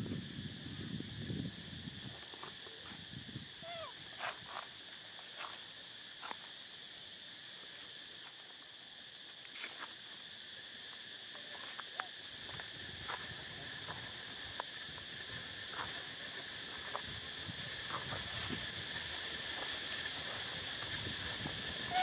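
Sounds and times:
high-pitched insect drone: 0.0 - 22.0.

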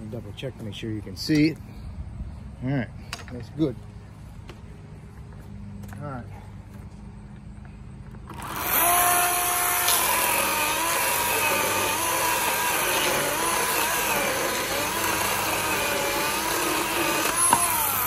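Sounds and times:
cordless chainsaw cutting log: 8.2 - 18.0.

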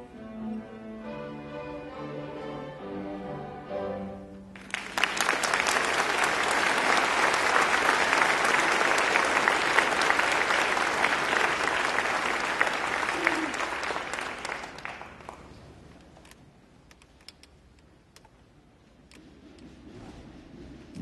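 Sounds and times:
string orchestra holding notes: 0.0 - 4.5
audience applause: 4.6 - 15.5.

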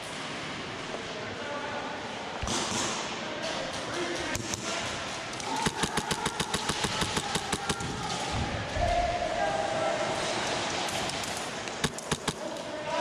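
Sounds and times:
airsoft gunfire: 5.4 - 8.0, 11.8 - 12.6.

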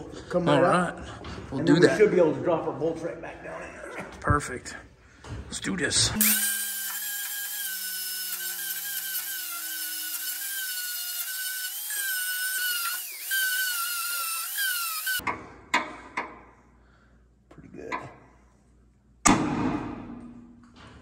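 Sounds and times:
angle grinder grinding steel: 6.2 - 15.2.

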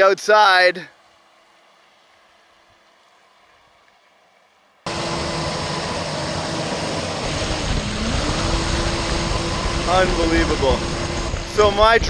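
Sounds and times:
electric motor whine: 4.9 - 12.0
water spraying and wind rushing: 4.9 - 12.0.

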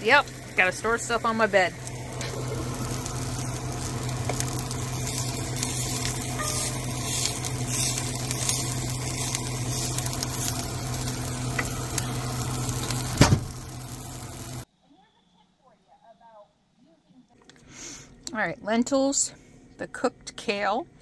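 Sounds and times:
kale sizzling in skillet: 0.0 - 14.6.

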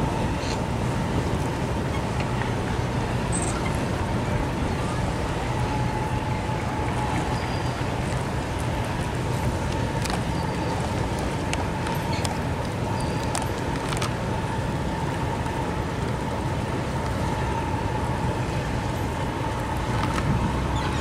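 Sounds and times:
wind buffeting microphone: 14.3 - 21.0.

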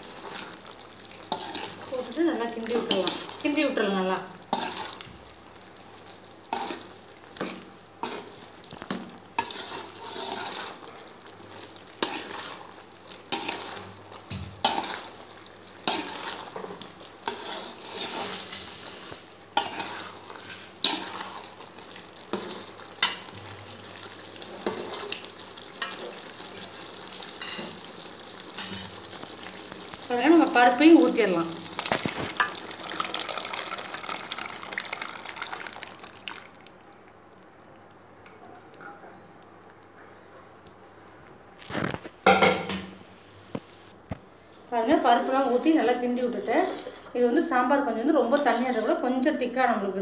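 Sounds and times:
gravy sizzling: 0.0 - 38.8, 44.8 - 49.1
metal spoon scraping a pot: 9.4 - 10.7, 17.3 - 18.8.

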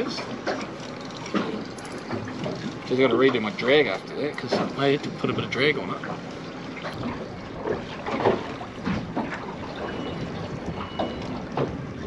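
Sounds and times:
water slapping against boat hull: 0.0 - 12.0
wind on microphone: 6.8 - 12.0.

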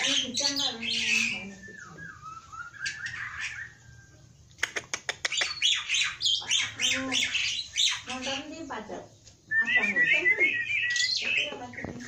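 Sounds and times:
harsh bird chattering: 0.0 - 3.9, 4.5 - 8.8, 9.7 - 12.0
bird clicks: 4.5 - 5.6.

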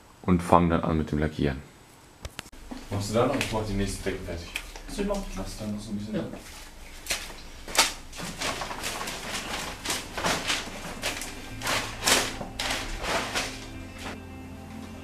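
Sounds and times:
faint low hum: 0.1 - 15.0
blankets rustling and slapping: 6.4 - 14.2.

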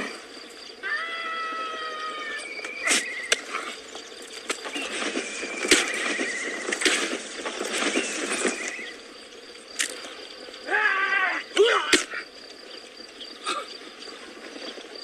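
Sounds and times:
horses whinnying: 0.8 - 3.9, 4.6 - 9.0
sharp blows of fighting horses: 0.8 - 9.1.

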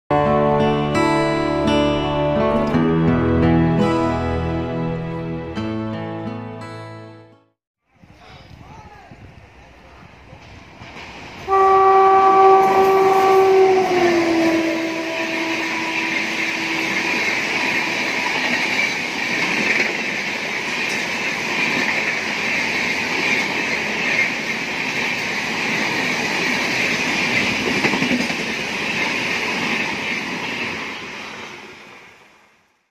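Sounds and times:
train wheels rumbling on rails: 8.5 - 32.1
locomotive horn: 11.5 - 19.1.

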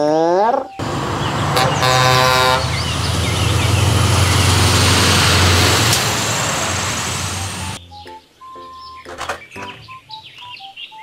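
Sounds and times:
birds chirping: 0.7 - 11.0
truck engine driving past: 0.8 - 7.8
truck horn: 0.8 - 7.8.

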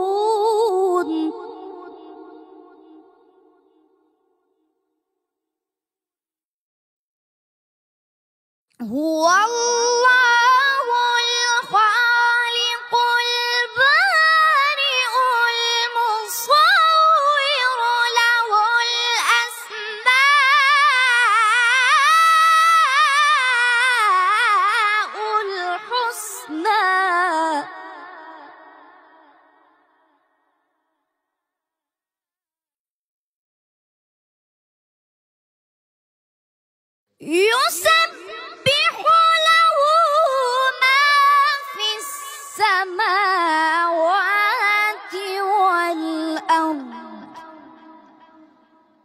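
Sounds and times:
boy reciting in melismatic chant: 0.0 - 3.0, 8.8 - 29.0, 37.2 - 48.2.

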